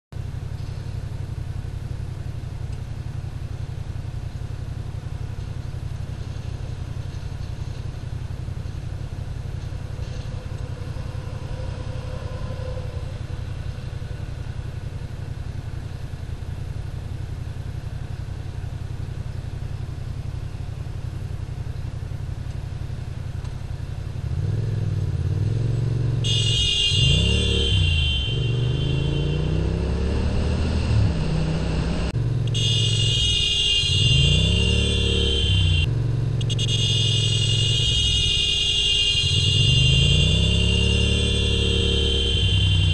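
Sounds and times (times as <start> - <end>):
motorcycle engine idling and revving: 0.1 - 42.9
shrill alarm-like buzzing: 9.8 - 14.6, 32.5 - 42.9.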